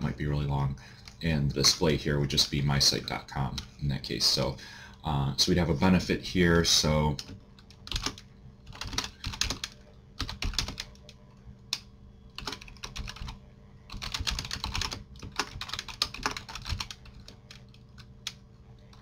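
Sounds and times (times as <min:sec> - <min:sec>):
typing on computer keyboard: 0:07.2 - 0:11.0, 0:12.4 - 0:18.4.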